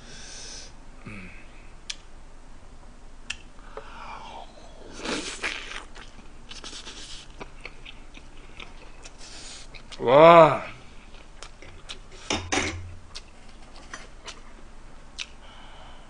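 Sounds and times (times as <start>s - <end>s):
wet chewing: 5.0s - 10.0s, 11.0s - 12.2s.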